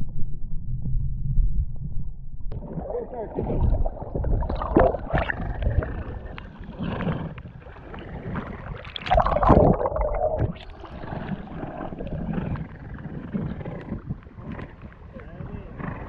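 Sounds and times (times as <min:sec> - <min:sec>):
water splashing: 0:02.5 - 0:13.2
seawater sloshing and gurgling: 0:02.5 - 0:16.0.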